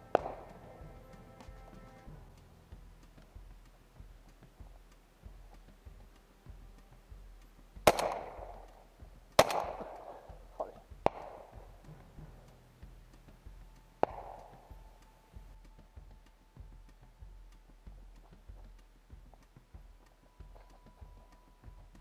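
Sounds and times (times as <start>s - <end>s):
shotgun shots echoing: 0.0s - 0.9s, 7.8s - 8.7s, 9.4s - 11.6s, 14.0s - 14.7s.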